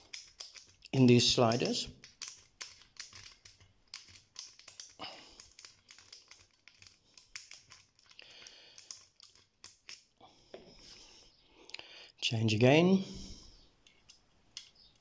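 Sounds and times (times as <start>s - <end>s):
lock pick clicking and scraping: 0.0s - 10.2s, 13.8s - 15.0s.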